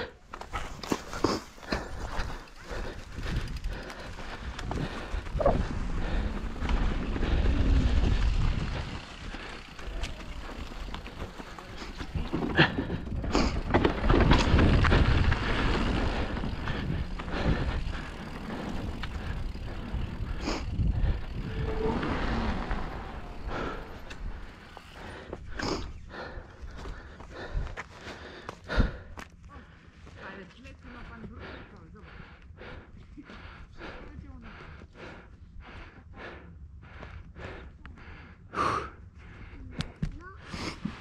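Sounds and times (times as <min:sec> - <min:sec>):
tyres on dirt: 0:00.1 - 0:32.0
wind buffeting microphone: 0:02.0 - 0:11.2, 0:12.0 - 0:27.8
bike knocks and rattles: 0:11.1 - 0:17.2.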